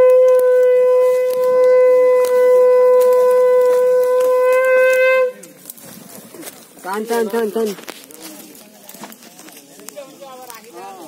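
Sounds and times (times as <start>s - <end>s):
conch shell blown: 0.0s - 5.6s.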